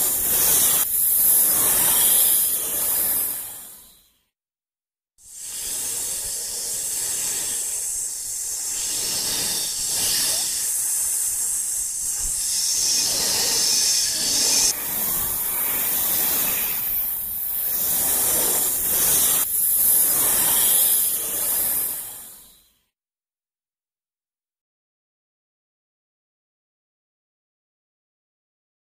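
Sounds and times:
loud steady hissing: 0:00.0 - 0:03.5, 0:05.3 - 0:22.4.

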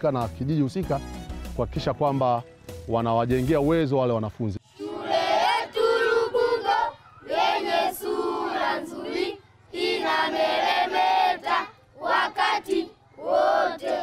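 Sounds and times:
children singing together: 0:04.8 - 0:14.0.

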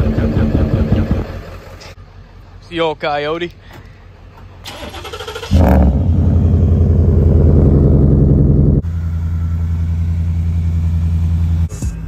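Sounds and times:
starter motor cranking: 0:04.6 - 0:05.7.

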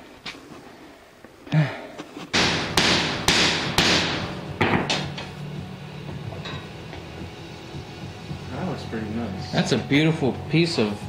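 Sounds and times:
hammer striking metal pipe: 0:02.4 - 0:05.3.

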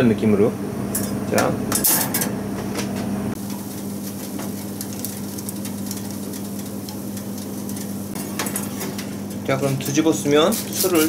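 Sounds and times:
fish fillets sizzling on a grill: 0:03.4 - 0:11.0.

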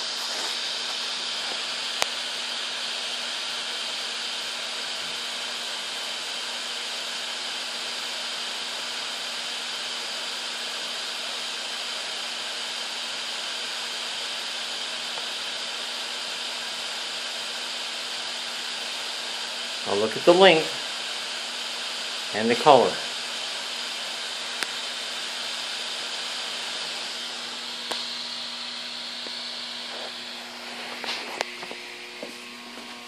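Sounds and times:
gas burner hissing: 0:00.0 - 0:33.0.

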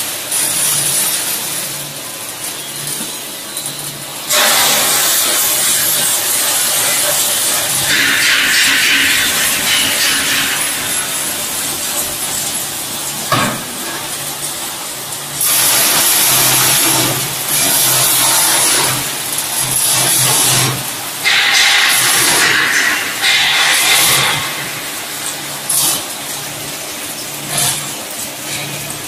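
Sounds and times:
peanuts rattling in steel drum: 0:00.0 - 0:29.0
metal clank: 0:07.5 - 0:14.7, 0:21.2 - 0:26.5.

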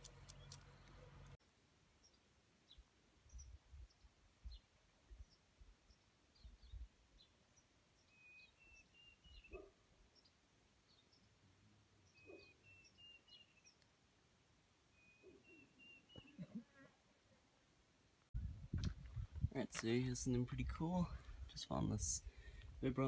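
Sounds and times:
soft low bumps: 0:18.4 - 0:22.8.

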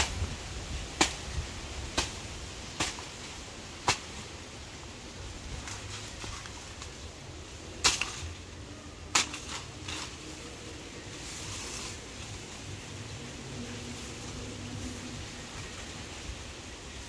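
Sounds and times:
leaves rustling: 0:00.0 - 0:17.0
machete chopping plant: 0:01.0 - 0:01.2, 0:01.9 - 0:02.2, 0:02.8 - 0:03.1, 0:03.8 - 0:04.2, 0:07.8 - 0:08.3, 0:09.1 - 0:10.1.

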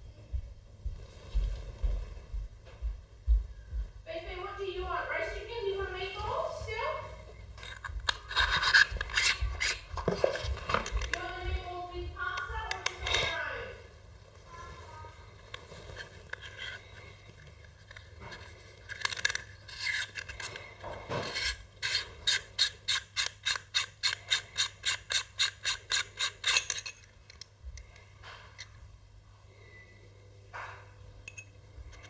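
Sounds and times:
parts scraping: 0:07.2 - 0:11.4, 0:12.2 - 0:13.6, 0:14.4 - 0:28.9, 0:30.6 - 0:32.0.

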